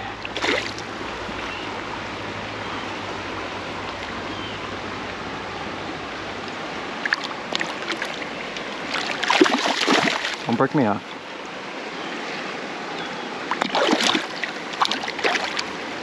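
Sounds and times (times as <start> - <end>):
creek water running over stones: 0.0 - 16.0
short splashes of a fish: 8.9 - 10.5, 13.5 - 15.6.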